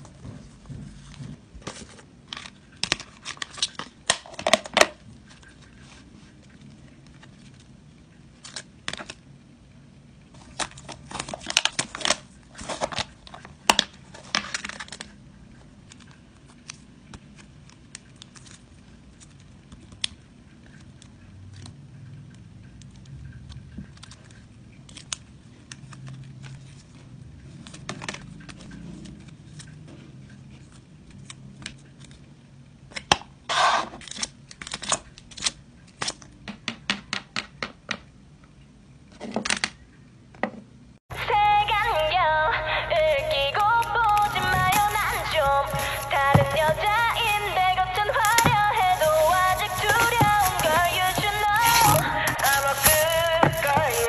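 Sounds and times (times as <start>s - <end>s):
plastic sleeves rustling: 10.3s - 21.2s, 42.8s - 54.0s.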